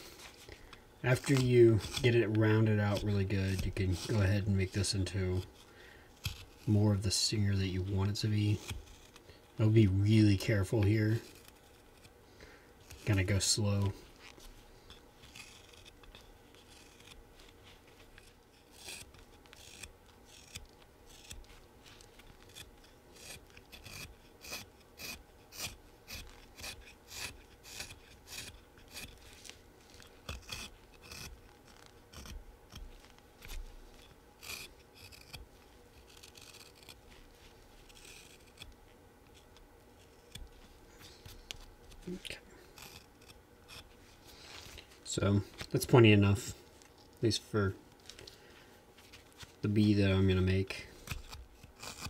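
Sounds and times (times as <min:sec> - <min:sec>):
knife slicing wood: 0:01.1 - 0:05.6, 0:06.2 - 0:06.8, 0:07.8 - 0:12.2, 0:15.2 - 0:17.3, 0:18.0 - 0:44.0, 0:50.9 - 0:52.0.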